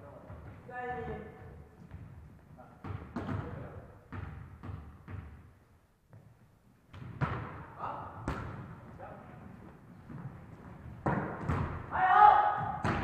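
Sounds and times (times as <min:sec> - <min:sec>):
volleyball impacts: 0:01.2 - 0:05.5, 0:06.9 - 0:08.9, 0:10.1 - 0:13.0.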